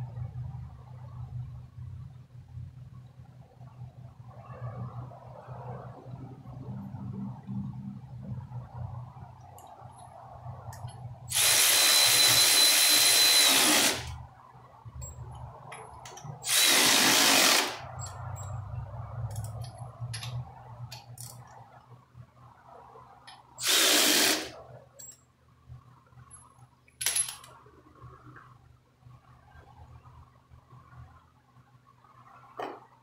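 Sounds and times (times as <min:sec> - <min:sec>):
power wrench driving bolts: 0:16.4 - 0:17.8, 0:23.6 - 0:24.5
tool clicks and handling noise: 0:19.2 - 0:21.6, 0:26.9 - 0:27.6.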